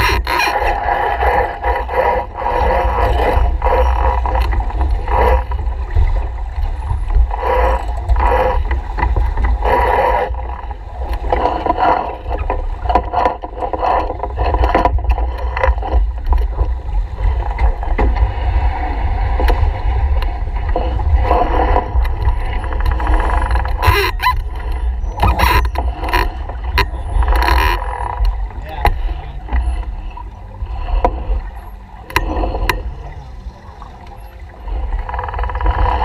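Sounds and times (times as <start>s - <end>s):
water moving along hull: 0.0s - 36.0s
wind buffeting microphone: 0.0s - 36.0s.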